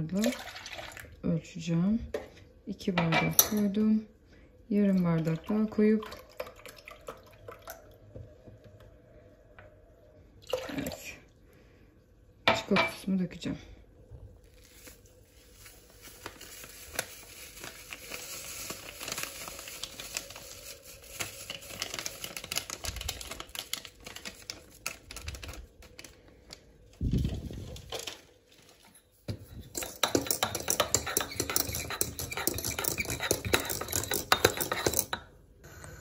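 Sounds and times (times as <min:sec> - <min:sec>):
paper sachet rustling: 0:14.4 - 0:29.0
whisk clattering in metal pot: 0:29.7 - 0:35.2.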